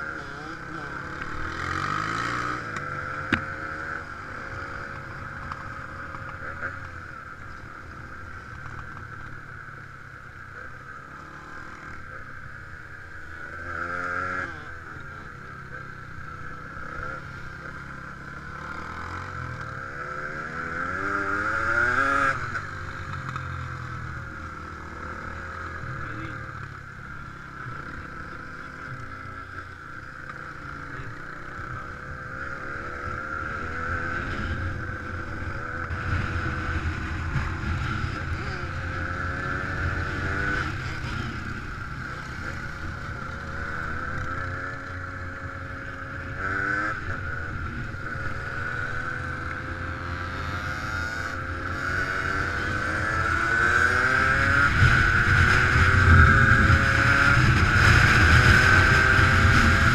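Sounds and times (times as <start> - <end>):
atv engine revving: 0.0 - 59.9
steady rushing noise: 16.2 - 59.9.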